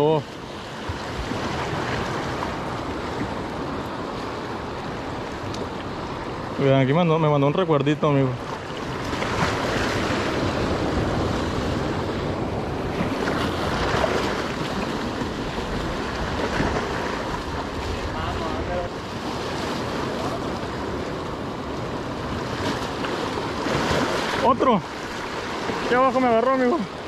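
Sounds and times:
ocean waves and surf: 0:00.0 - 0:27.0
wind buffeting the microphone: 0:08.2 - 0:26.1.

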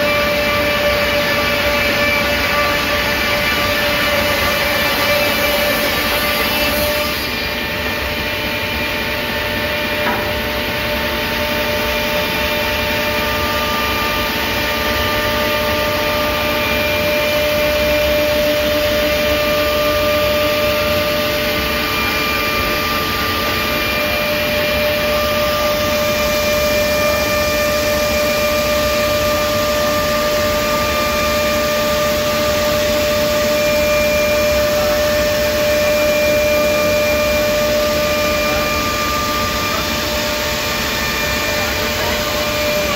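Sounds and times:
trimming saw cutting timber: 0:00.0 - 0:08.6.

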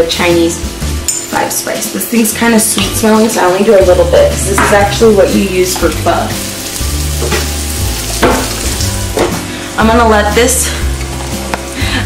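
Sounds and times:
chicken sizzling in oil: 0:04.9 - 0:09.4
stirring and scraping in pan: 0:05.8 - 0:09.2.

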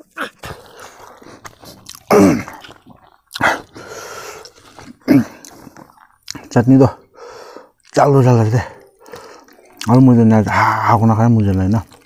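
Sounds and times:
person chewing food: 0:00.0 - 0:12.0.

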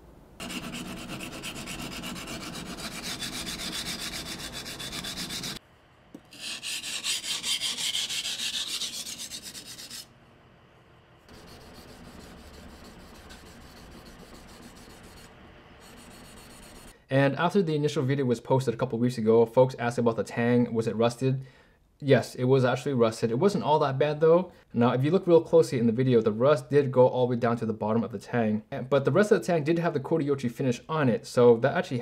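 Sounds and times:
knife scraping on whetstone: 0:00.4 - 0:05.6, 0:06.3 - 0:10.0.

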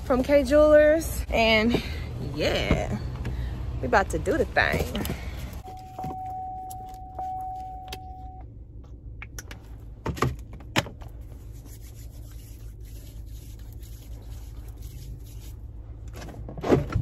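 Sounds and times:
low steady hum: 0:00.0 - 0:17.0
car warning chime: 0:05.6 - 0:08.5.

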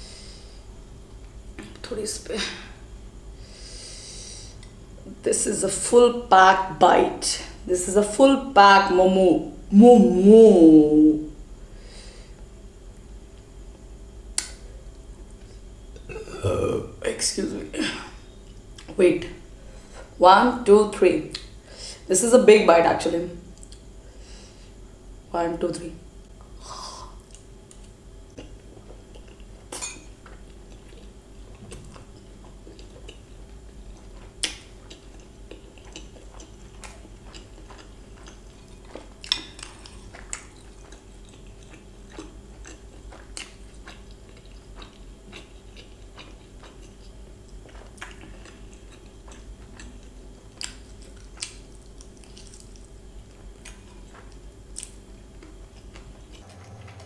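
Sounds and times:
chewing food: 0:27.2 - 0:57.0
low hum: 0:55.4 - 0:57.0.

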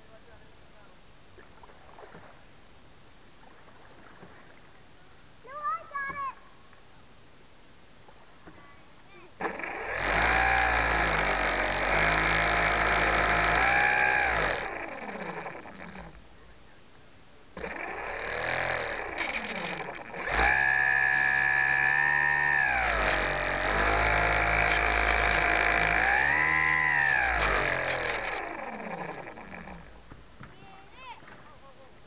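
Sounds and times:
electric motor and propeller whining: 0:09.4 - 0:16.2, 0:17.6 - 0:30.1.

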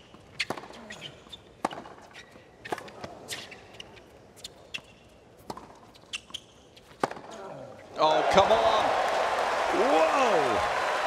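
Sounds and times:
tennis ball bouncing: 0:01.6 - 0:02.1, 0:05.4 - 0:07.3
racket striking tennis ball: 0:06.9 - 0:07.3.

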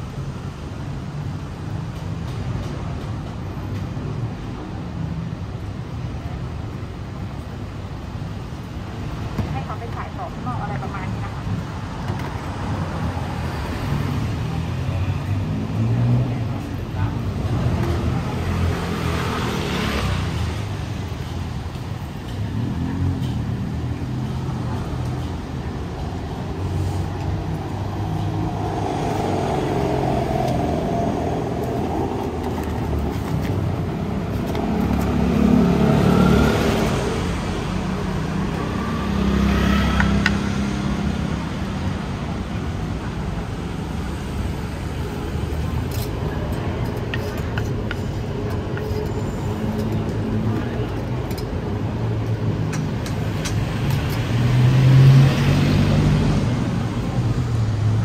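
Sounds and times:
rumble of traffic: 0:00.0 - 0:58.0
vehicles accelerating past: 0:12.4 - 0:58.0.

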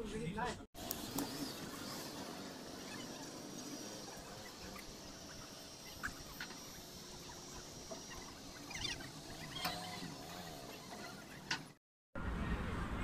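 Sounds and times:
wavering high-pitched calls: 0:01.3 - 0:11.5.

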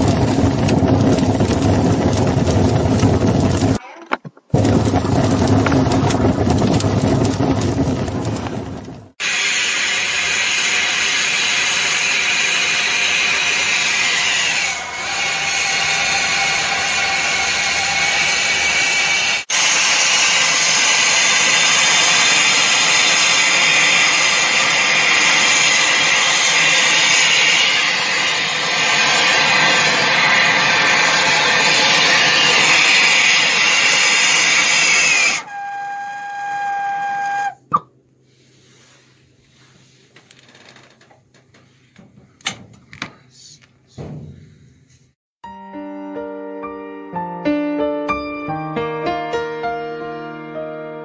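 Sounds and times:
brazing torch flame hissing: 0:06.5 - 0:37.5.

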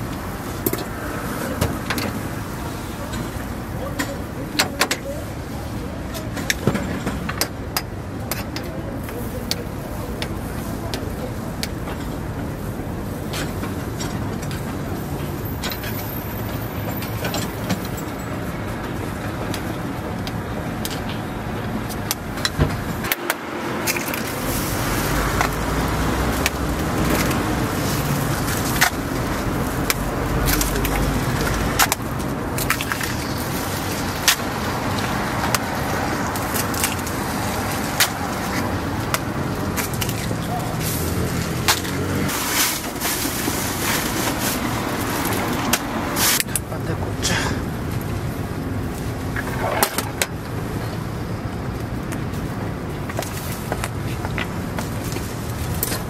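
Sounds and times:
street traffic: 0:00.0 - 0:56.0.

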